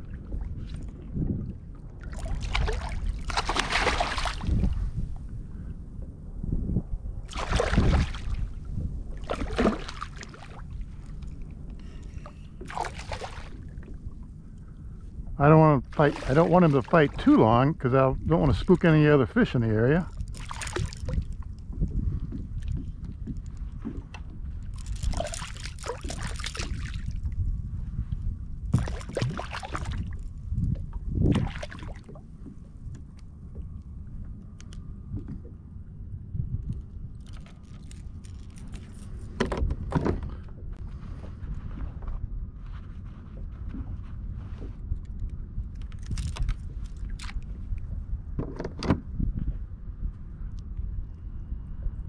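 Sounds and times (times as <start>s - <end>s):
fish splashing in water: 2.1s - 4.6s, 7.3s - 8.4s, 20.2s - 21.3s, 24.8s - 27.2s.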